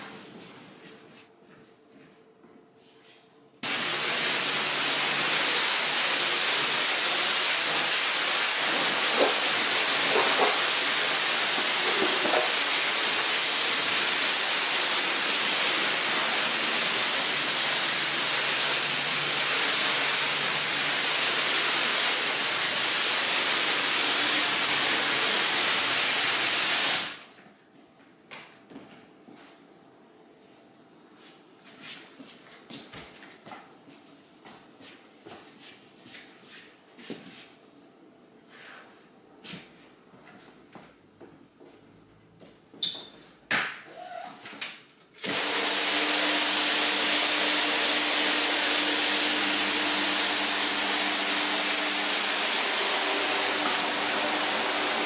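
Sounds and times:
water spray hissing on carpet: 3.6s - 27.2s, 45.2s - 55.0s.

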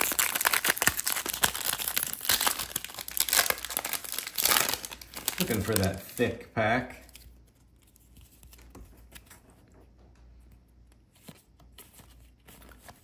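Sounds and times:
trading cards rustling: 0.0s - 6.4s, 10.4s - 13.0s.

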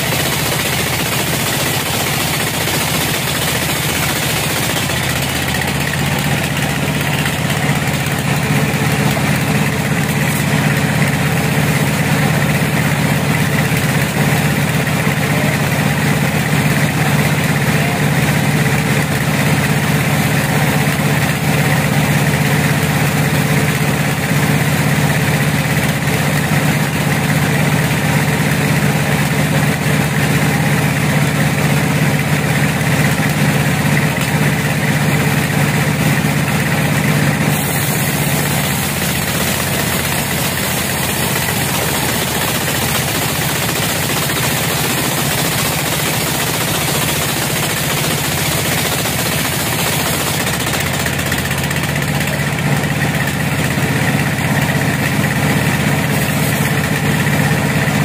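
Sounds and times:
sawmill engine hum: 0.0s - 58.0s
saw blade hissing through log: 37.4s - 50.4s, 56.0s - 56.8s.

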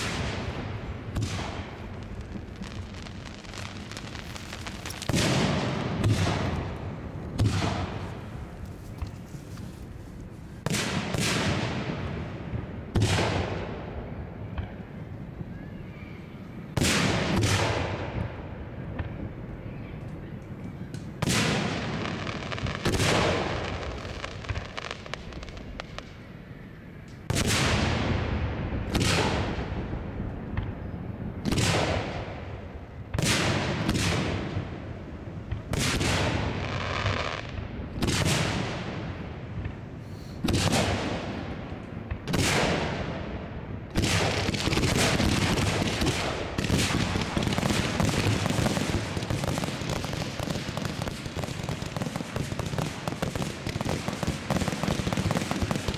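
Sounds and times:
firework shells bursting: 1.2s - 6.8s.

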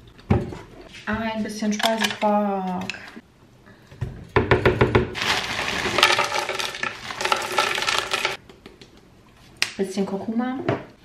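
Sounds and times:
frozen berries rattling into jar: 5.2s - 8.4s.

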